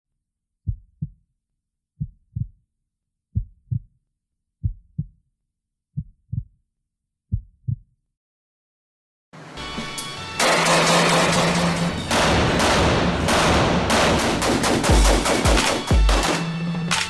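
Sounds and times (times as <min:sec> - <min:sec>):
heartbeat thumps: 0:00.6 - 0:01.2, 0:02.0 - 0:02.6, 0:03.3 - 0:03.9, 0:04.6 - 0:05.2, 0:06.0 - 0:06.6, 0:07.3 - 0:07.9.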